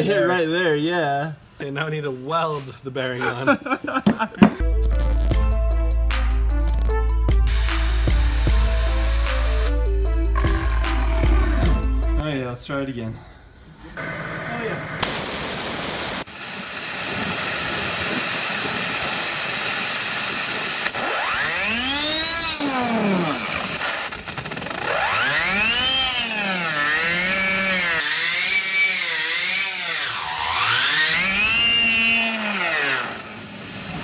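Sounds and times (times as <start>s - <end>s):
waterjet hissing on metal: 7.5s - 9.7s, 15.0s - 21.0s
spinner high whine: 17.0s - 28.0s.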